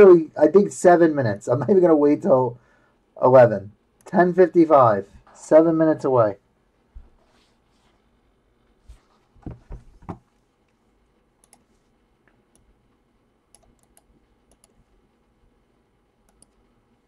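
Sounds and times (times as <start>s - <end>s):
soft thumps: 9.4s - 10.3s
computer mouse clicks: 11.4s - 12.7s, 13.5s - 14.8s, 16.2s - 16.7s.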